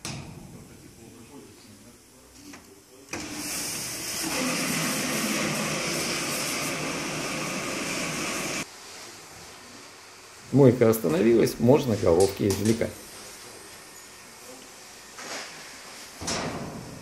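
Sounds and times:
parts-washing machine spraying: 3.2 - 8.7.

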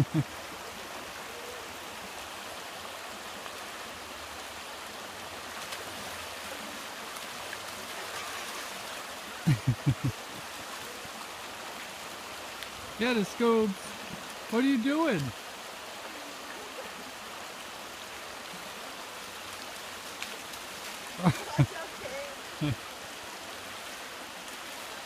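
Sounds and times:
river flowing: 0.0 - 25.0.

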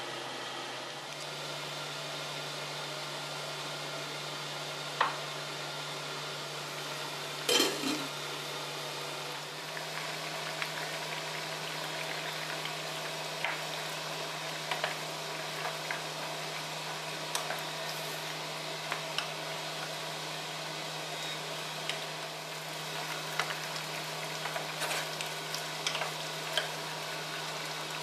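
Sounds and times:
food simmering bubbling hiss: 6.6 - 28.0
glass lid clank: 7.5 - 8.1.

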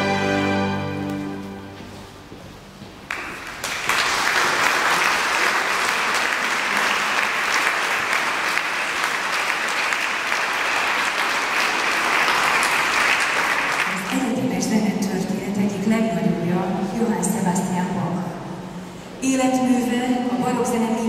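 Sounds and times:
audience applauding in a hall: 3.0 - 14.3.

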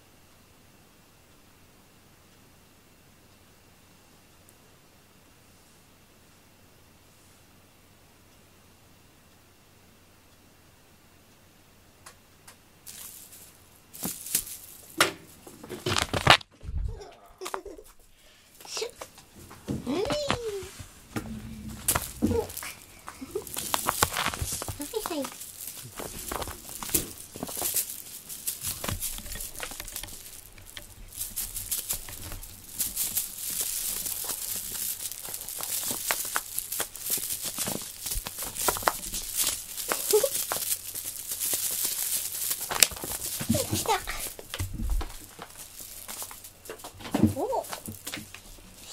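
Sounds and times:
claws clicking: 12.9 - 16.4, 21.2 - 46.9
cat scrabbling across carpet: 19.4 - 48.6.

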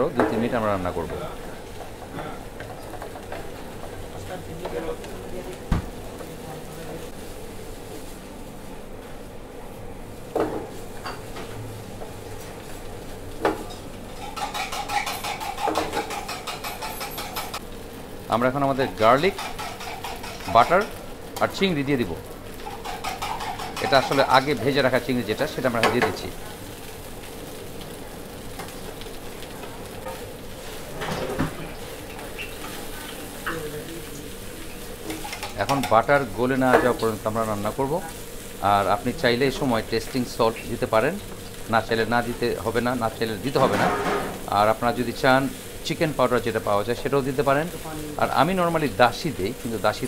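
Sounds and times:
rice sizzling in a pan: 0.0 - 50.0
knock on pan: 5.7 - 6.0, 10.3 - 10.7, 43.7 - 44.5
spatula scraping frying pan: 14.1 - 17.6, 19.1 - 21.0, 22.6 - 24.6
spatula clanking against pan: 14.2 - 17.6, 19.3 - 21.0, 22.7 - 24.6.

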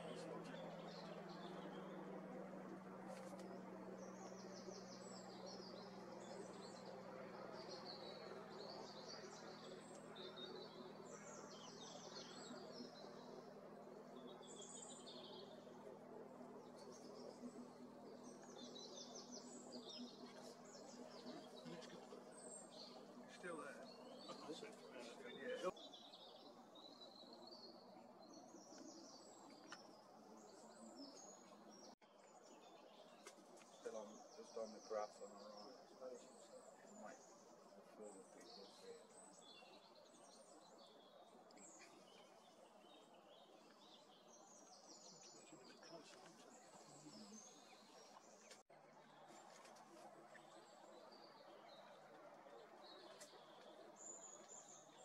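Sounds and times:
steady low hum: 0.0 - 25.7
songbirds chirping: 0.0 - 55.0.

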